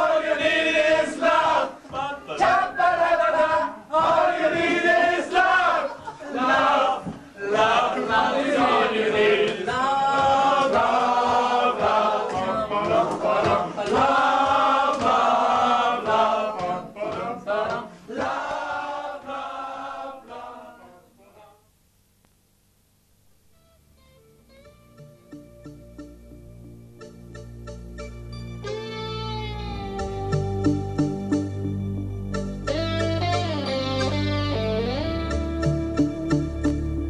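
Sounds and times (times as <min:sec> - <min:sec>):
male voices singing in chorus: 0:00.0 - 0:21.0.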